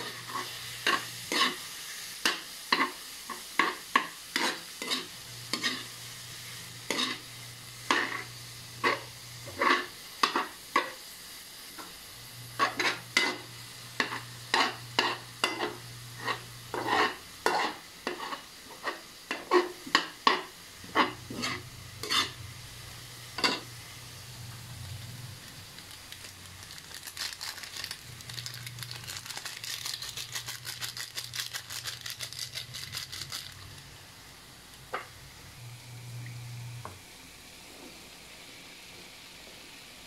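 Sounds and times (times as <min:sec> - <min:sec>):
metal spatula scraping a wok: 0:00.0 - 0:01.7, 0:03.6 - 0:06.0, 0:06.9 - 0:07.2, 0:07.9 - 0:10.5, 0:12.6 - 0:13.4, 0:14.0 - 0:19.8, 0:20.8 - 0:22.4
seasoning shaken out patter: 0:00.0 - 0:07.3, 0:25.4 - 0:34.0
faint sizzle: 0:00.0 - 0:40.0.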